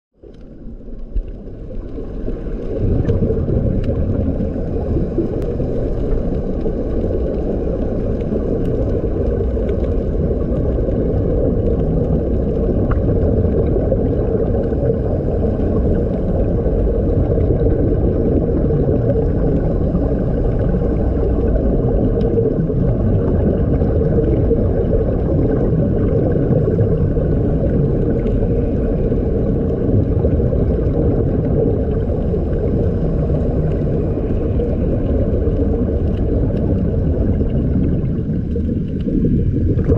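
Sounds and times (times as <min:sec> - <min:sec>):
faint clicks: 0:00.2 - 0:04.0
muffled underwater bubbling: 0:00.2 - 0:39.9.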